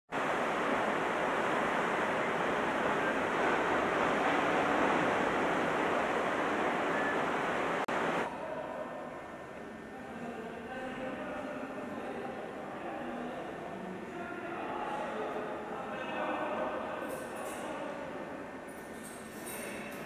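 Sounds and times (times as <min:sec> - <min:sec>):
steady rushing noise: 0:00.1 - 0:08.3
faint steady tones: 0:00.2 - 0:08.2.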